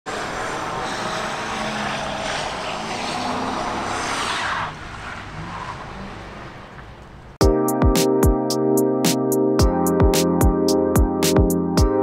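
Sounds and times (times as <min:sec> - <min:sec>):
tyre screech: 0:00.1 - 0:06.7
car engine revving: 0:00.1 - 0:07.3.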